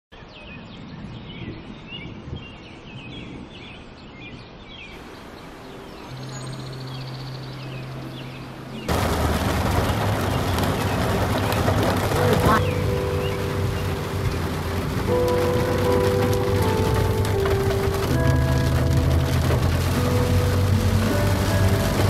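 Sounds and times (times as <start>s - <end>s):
small birds chirping: 0.1s - 16.8s
rain on a car: 8.8s - 22.0s.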